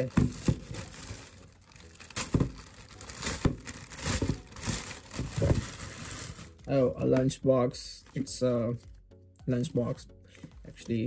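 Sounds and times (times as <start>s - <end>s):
plastic bag crinkling and tearing: 0.0s - 6.7s.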